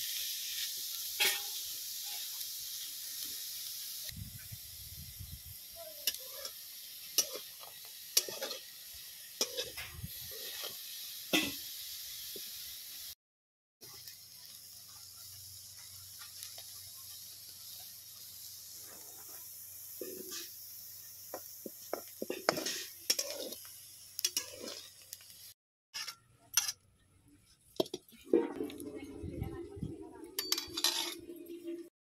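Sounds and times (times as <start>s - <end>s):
prawns sizzling in hot oil: 0.0s - 13.2s, 13.8s - 26.8s, 27.4s - 31.9s
metal spatula scraping a pan: 1.2s - 2.4s, 6.0s - 8.7s, 9.4s - 10.8s, 18.8s - 20.6s, 21.7s - 25.1s, 25.9s - 26.8s, 30.4s - 31.6s.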